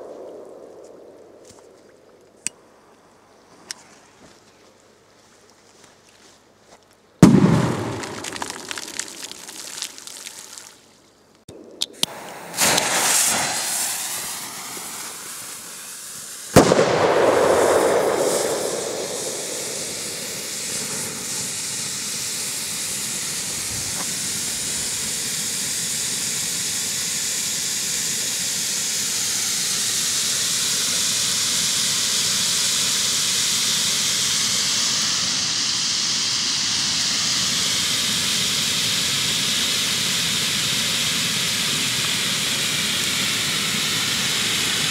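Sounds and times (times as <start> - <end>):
firework hissing: 0.0 - 1.5, 7.2 - 10.8, 11.9 - 44.9
firecracker bang: 7.2 - 10.4, 12.1 - 15.9, 16.5 - 24.2.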